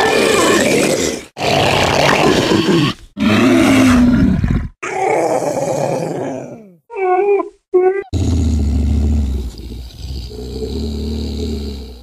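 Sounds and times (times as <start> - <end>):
raspy creature roars: 8.1 - 12.0.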